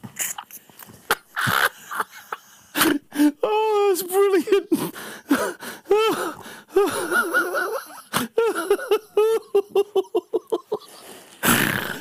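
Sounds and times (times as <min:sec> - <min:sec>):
men laughing hard: 0:01.1 - 0:03.4, 0:04.4 - 0:11.2.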